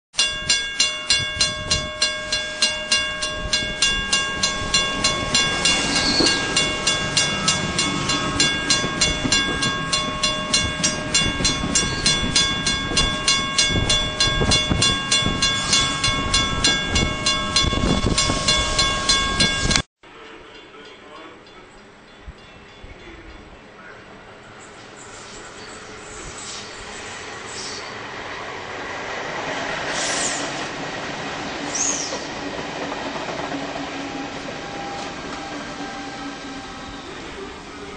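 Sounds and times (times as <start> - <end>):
rhythmic train chuffing: 1.1 - 21.6.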